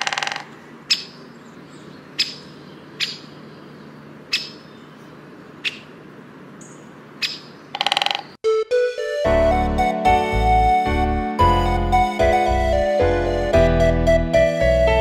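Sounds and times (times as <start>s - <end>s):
bird chipping: 0.0s - 8.4s.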